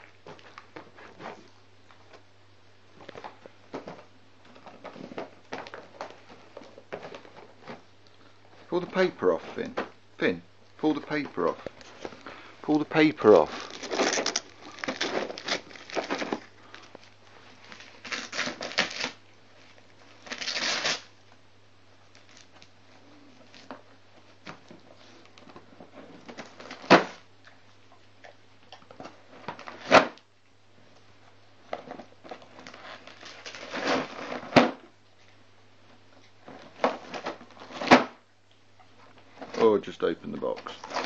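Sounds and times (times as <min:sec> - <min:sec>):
faint low hum: 0:00.0 - 0:41.0
dog tearing wrapping paper: 0:13.3 - 0:16.8, 0:17.5 - 0:19.2, 0:20.0 - 0:21.1, 0:26.0 - 0:27.2, 0:29.0 - 0:30.2, 0:31.7 - 0:34.8, 0:36.6 - 0:38.1, 0:40.7 - 0:41.0.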